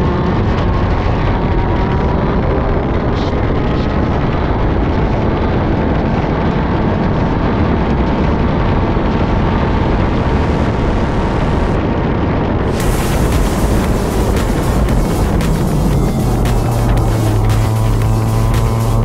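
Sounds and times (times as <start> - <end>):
kart two-stroke engine running: 12.7 - 19.0.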